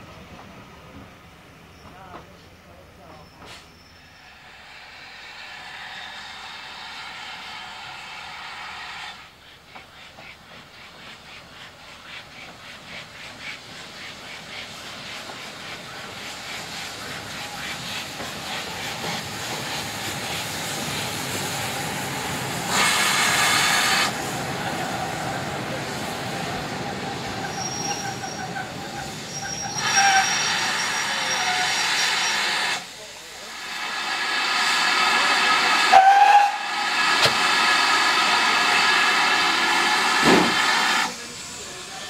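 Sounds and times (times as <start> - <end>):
steam train running slowly: 0.0 - 42.0
steady squeal: 3.0 - 7.7, 27.0 - 32.5
steam hissing: 3.4 - 42.0.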